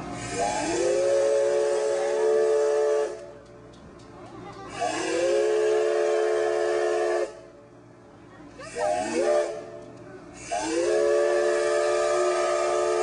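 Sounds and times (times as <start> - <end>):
steam hiss: 0.0 - 3.3, 4.7 - 7.5, 8.7 - 9.6, 10.4 - 13.0.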